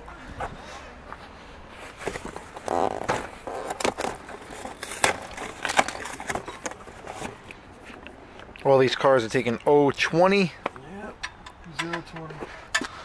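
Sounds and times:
plastic crinkling: 2.6s - 7.4s
tools clicking and knocking: 10.6s - 13.0s.

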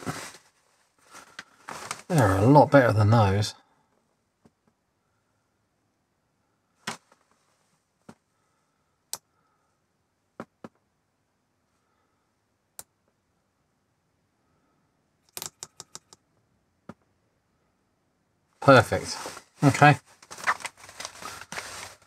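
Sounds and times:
metal probe tips tapping: 15.3s - 16.2s.

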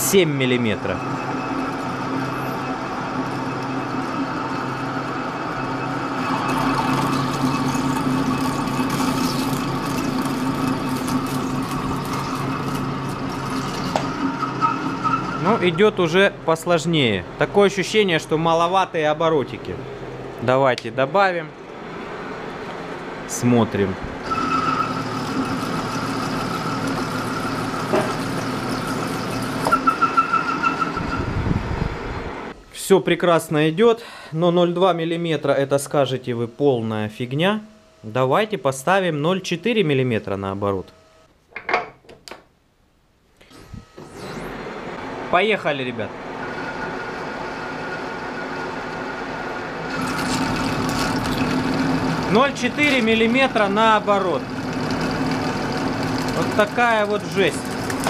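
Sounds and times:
lathe cutting steel: 0.0s - 16.3s, 24.2s - 31.2s, 46.1s - 58.0s.

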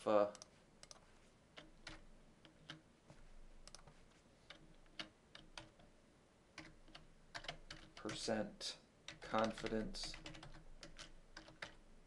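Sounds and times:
computer mouse and keyboard clicks: 0.3s - 2.9s, 3.6s - 5.9s, 6.6s - 8.3s, 9.1s - 11.8s.

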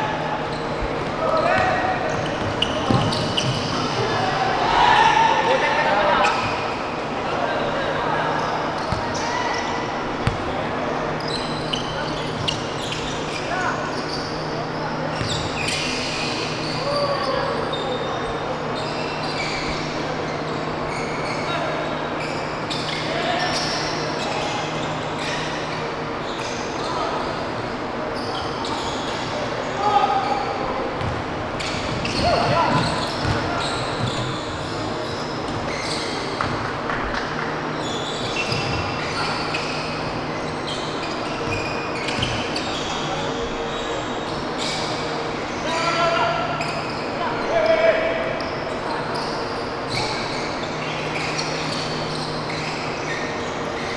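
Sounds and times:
sneakers squeaking on hardwood: 0.1s - 4.4s, 8.3s - 27.1s, 30.2s - 47.6s, 48.3s - 53.9s
basketball bouncing: 10.2s - 10.5s.

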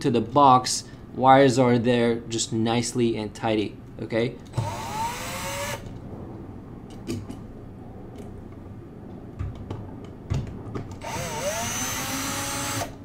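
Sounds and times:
cordless drill driving screw: 4.6s - 5.8s, 11.0s - 13.0s.

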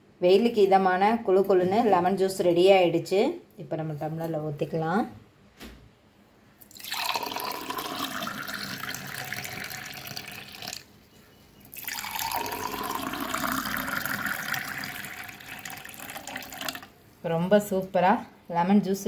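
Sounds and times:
juice pouring into a glass: 6.6s - 10.9s, 11.7s - 17.0s.

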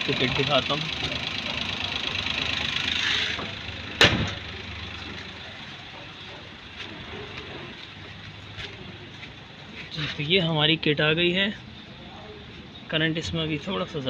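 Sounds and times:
car engine idling: 0.0s - 10.0s
car bonnet slamming shut: 3.3s - 4.5s.

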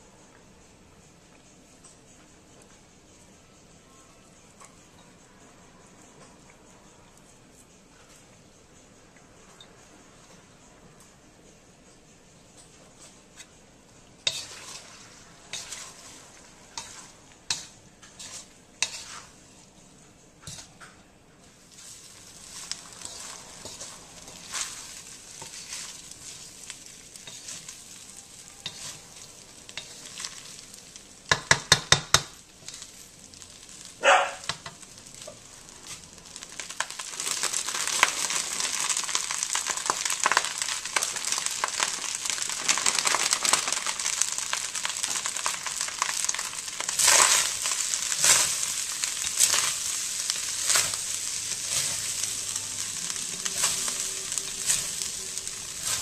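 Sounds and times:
loud sizzling in a wok: 0.0s - 56.0s
wooden spatula scraping a wok: 14.2s - 19.7s, 20.4s - 20.9s, 21.6s - 31.6s, 32.6s - 33.0s, 34.4s - 56.0s.

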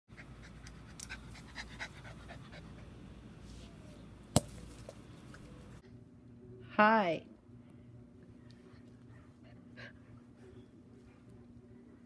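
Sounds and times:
dog panting: 0.1s - 3.0s.

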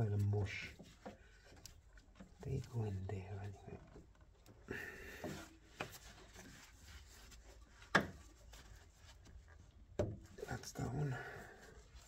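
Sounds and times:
gloved hand rubbing wiring: 5.3s - 9.9s.

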